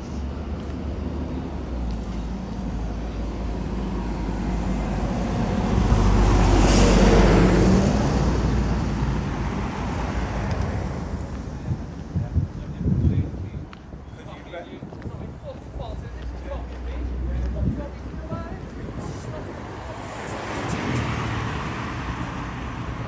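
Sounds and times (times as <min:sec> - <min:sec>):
motor vehicle passing: 0:02.5 - 0:11.4.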